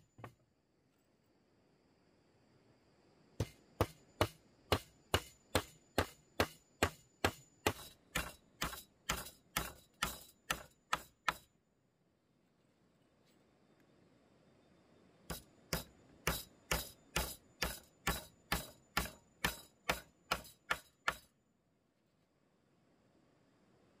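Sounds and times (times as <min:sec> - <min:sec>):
hand tool striking bamboo: 0:03.4 - 0:11.5, 0:15.3 - 0:21.3.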